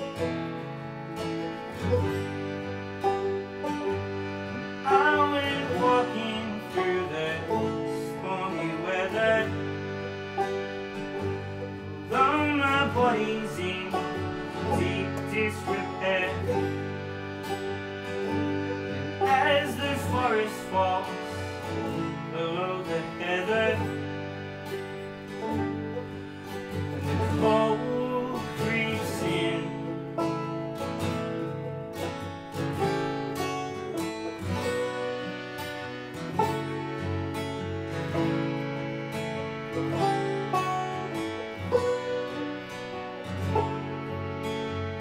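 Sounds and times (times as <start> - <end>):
acoustic guitar strummed: 0.0 - 45.0
banjo picked: 0.0 - 45.0
harmonium chords: 0.0 - 45.0
man singing: 4.8 - 9.8, 12.1 - 16.8, 19.2 - 24.1, 27.0 - 30.2.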